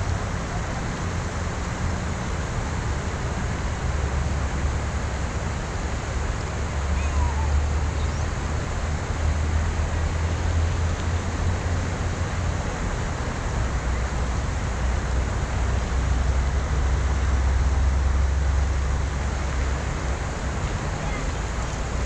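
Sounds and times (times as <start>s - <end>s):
river flowing: 0.0s - 22.0s.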